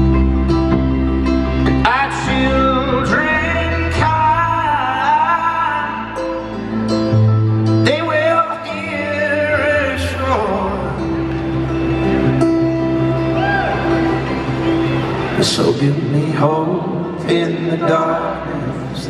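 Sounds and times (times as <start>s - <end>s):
acoustic guitar: 0.0s - 19.0s
man singing slow song: 1.6s - 6.6s, 7.7s - 11.3s, 15.4s - 19.0s.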